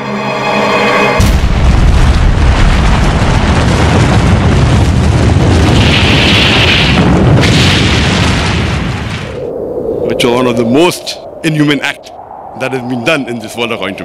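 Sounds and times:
explosion blast: 1.2s - 9.5s
deep rumble: 1.2s - 14.0s.

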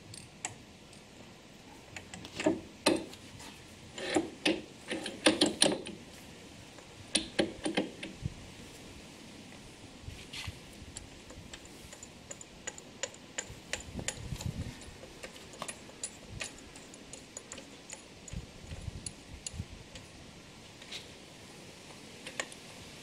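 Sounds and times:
small metallic clicks: 0.0s - 1.1s, 1.7s - 3.2s, 4.0s - 6.0s, 6.8s - 8.2s, 10.9s - 21.1s, 21.9s - 22.7s.

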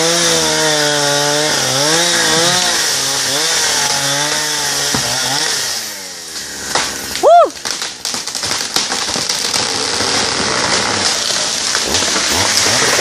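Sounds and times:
chainsaw engine: 0.0s - 13.0s
snaps and crackles: 6.7s - 13.0s.

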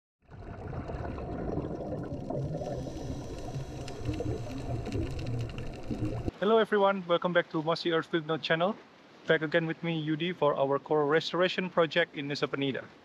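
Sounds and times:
underwater rumble and crackle: 0.2s - 6.3s.

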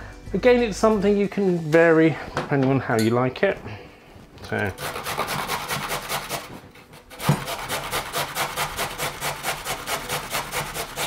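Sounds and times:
carrot grating on metal grater: 4.6s - 11.0s
knock: 7.2s - 7.5s.

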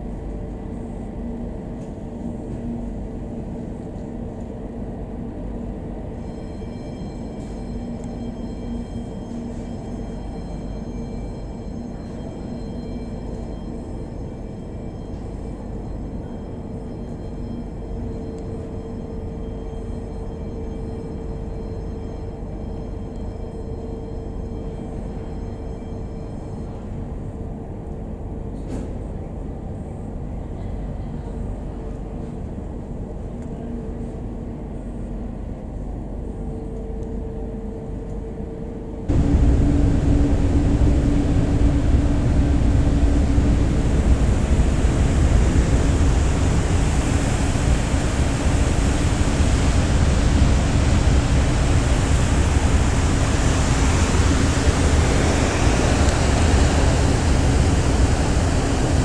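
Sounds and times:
ferry engines droning: 0.0s - 59.0s
loud rushing noise: 39.1s - 59.0s.

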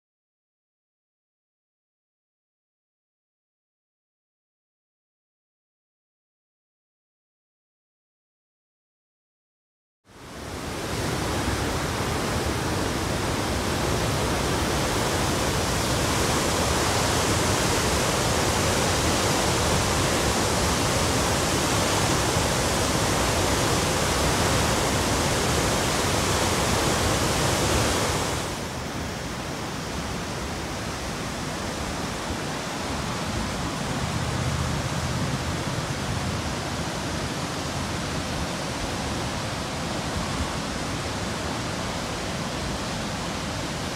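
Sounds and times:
floodwater rushing over a weir: 10.2s - 43.9s.

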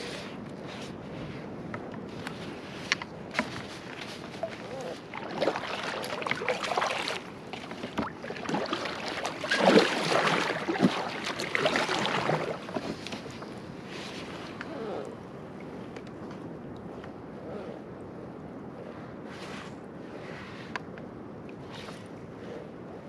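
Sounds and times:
paddle strokes splashing water: 2.1s - 14.6s.

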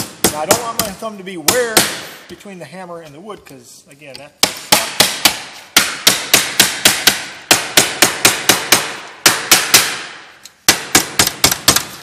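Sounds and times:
hammer striking aluminum sheet: 4.4s - 12.0s.

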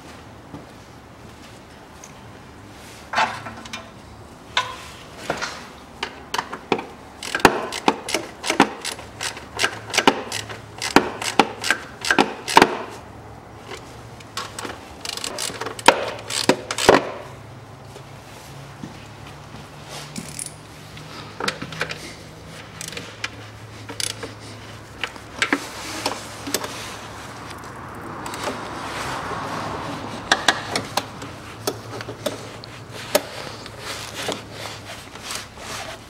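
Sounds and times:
hand tools clicking and rattling: 6.0s - 12.9s, 14.4s - 17.2s, 21.4s - 26.8s.

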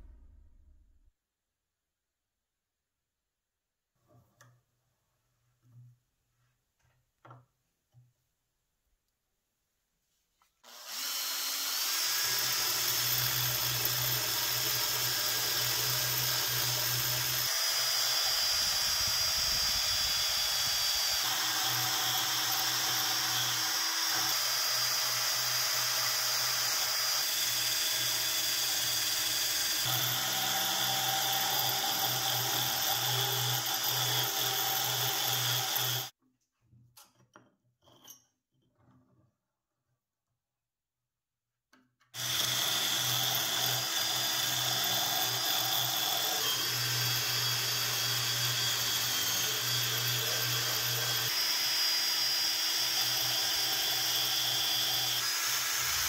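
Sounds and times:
drill wire brush scratching rust: 54.3s - 56.0s.

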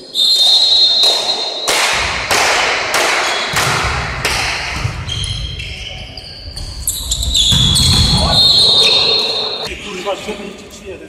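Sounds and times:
volleyball thuds echoing: 1.7s - 5.5s, 6.6s - 9.1s.

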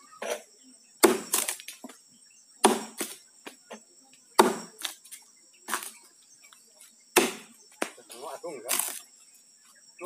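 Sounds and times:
high insect drone: 0.0s - 10.0s
axe chopping wood: 1.0s - 1.7s, 2.6s - 3.2s, 4.4s - 5.0s, 7.1s - 8.0s.

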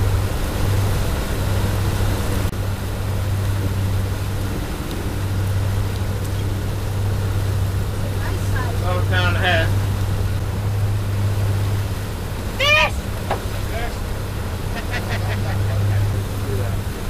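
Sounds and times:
outboard motor humming: 0.0s - 17.0s
rush of boat wake: 0.0s - 17.0s
wind: 0.0s - 17.0s.

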